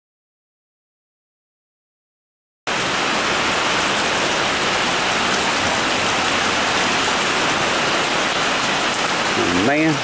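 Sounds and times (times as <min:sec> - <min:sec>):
rain falling steadily: 0:02.7 - 0:10.0.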